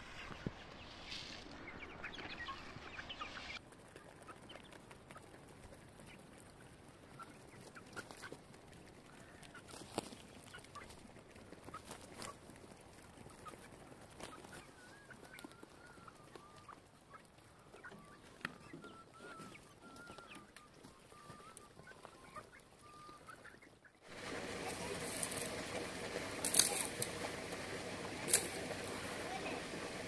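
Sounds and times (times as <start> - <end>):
open-air hiss: 0.0 - 3.6, 24.0 - 30.0
hens clucking: 0.0 - 30.0.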